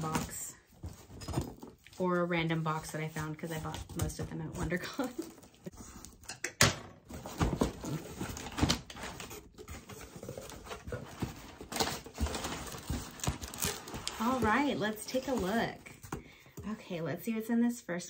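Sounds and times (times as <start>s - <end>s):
packing paper rustling: 7.1s - 16.0s
loud paper crackle: 10.2s - 14.8s.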